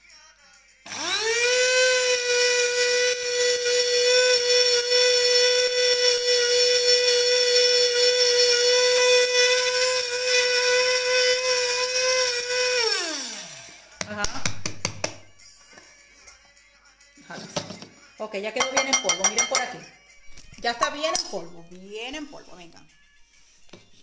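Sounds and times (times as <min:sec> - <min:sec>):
spice grinder motor whining: 0:00.9 - 0:13.9.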